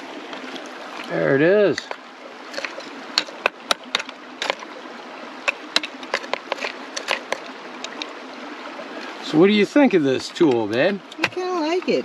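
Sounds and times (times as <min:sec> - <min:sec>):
water flowing: 0:00.0 - 0:12.0
gravel clicking into plastic pan: 0:05.4 - 0:08.1.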